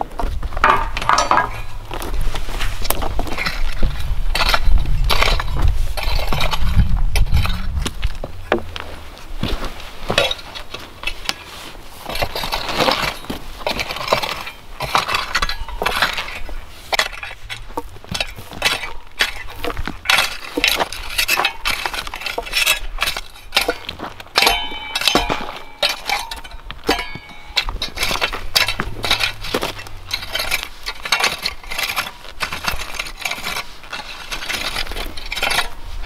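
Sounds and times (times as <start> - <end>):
rake scraping stony soil: 0.0 - 36.0.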